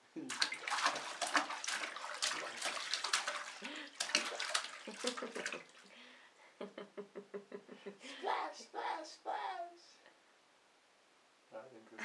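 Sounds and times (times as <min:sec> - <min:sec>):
baby splashing bath water: 0:00.2 - 0:06.0.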